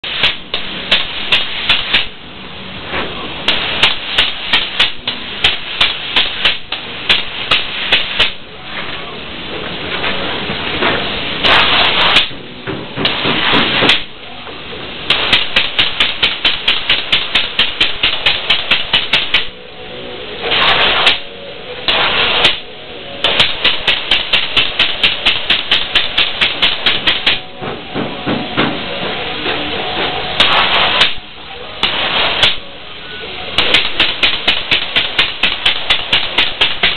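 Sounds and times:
spray foam gun hissing: 0:00.0 - 0:02.2, 0:03.5 - 0:08.4, 0:11.1 - 0:12.4, 0:15.1 - 0:19.5, 0:20.5 - 0:21.2, 0:21.9 - 0:27.4, 0:30.4 - 0:32.6, 0:33.5 - 0:36.9.

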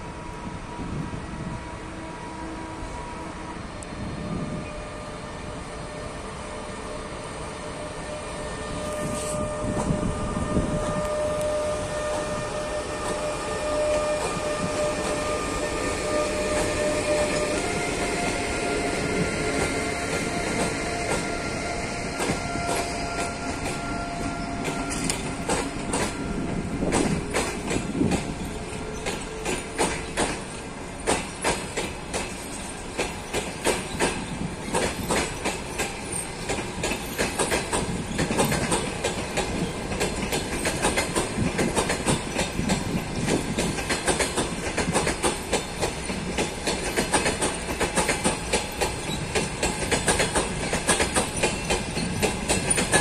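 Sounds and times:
electric locomotive whine: 0:00.0 - 0:53.0
train low rumble: 0:00.0 - 0:53.0.

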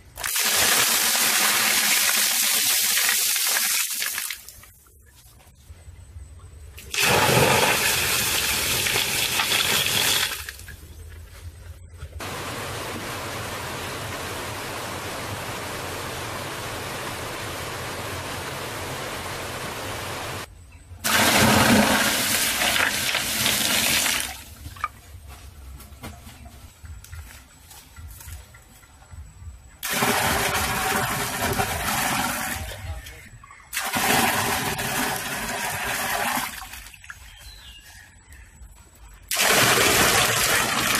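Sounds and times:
water gushing and splashing: 0:06.9 - 0:10.6, 0:21.1 - 0:24.6, 0:33.8 - 0:37.0, 0:39.3 - 0:40.9
running water rushing: 0:12.2 - 0:20.5.

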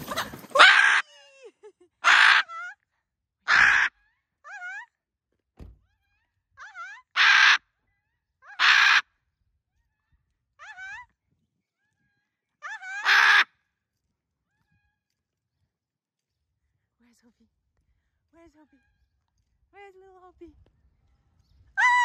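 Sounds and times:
parrot screaming: 0:00.6 - 0:01.0, 0:02.0 - 0:02.7, 0:03.5 - 0:04.8, 0:06.6 - 0:07.6, 0:08.4 - 0:09.1, 0:12.6 - 0:13.5, 0:21.8 - 0:22.0.

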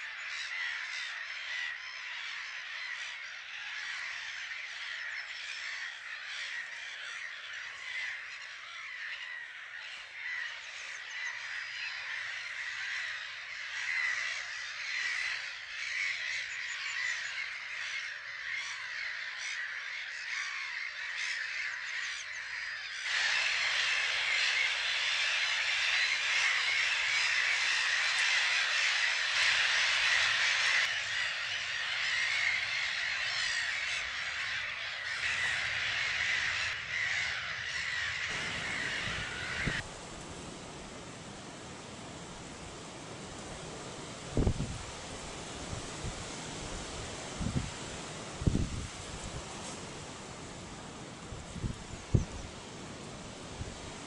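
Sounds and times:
gull colony calling: 0:00.0 - 0:39.9.

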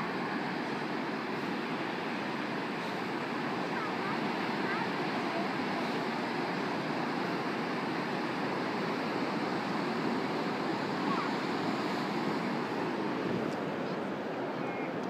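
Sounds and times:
ocean surf breaking on beach: 0:00.0 - 0:15.0.

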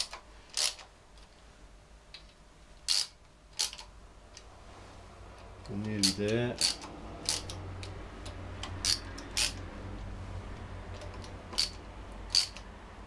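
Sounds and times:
low steady hum: 0:00.0 - 0:13.0
sharp metallic clicks: 0:05.4 - 0:09.7, 0:10.9 - 0:12.7.

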